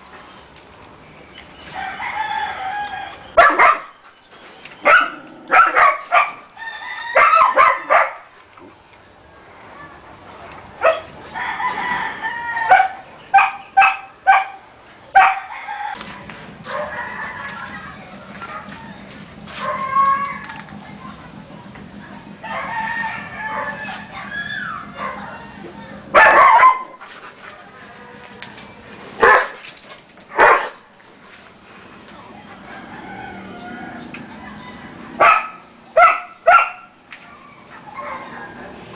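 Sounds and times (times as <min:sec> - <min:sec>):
rooster crowing: 0:01.7 - 0:03.4, 0:06.4 - 0:08.0, 0:11.2 - 0:13.1, 0:15.3 - 0:19.0, 0:22.4 - 0:27.0, 0:27.6 - 0:28.7, 0:32.4 - 0:35.3
dog barking: 0:03.4 - 0:04.0, 0:04.8 - 0:06.5, 0:07.2 - 0:08.3, 0:10.8 - 0:11.1, 0:12.7 - 0:14.6, 0:15.2 - 0:15.5, 0:16.7 - 0:17.0, 0:26.1 - 0:27.0, 0:29.2 - 0:29.6, 0:30.4 - 0:30.8, 0:35.2 - 0:36.9.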